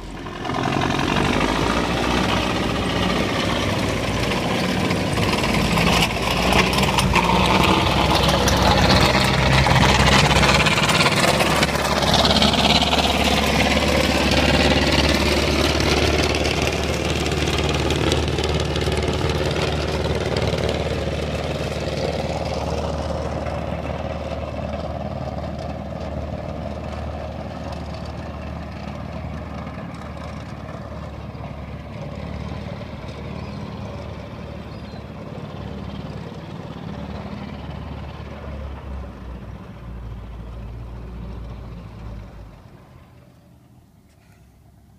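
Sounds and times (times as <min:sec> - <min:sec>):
tracked vehicle engine running: 0:00.0 - 0:44.9.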